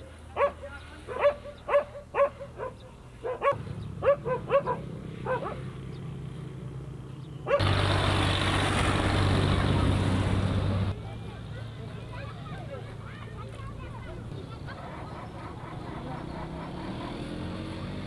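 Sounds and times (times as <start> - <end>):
dog barking: 0.3 - 5.7, 7.4 - 7.6.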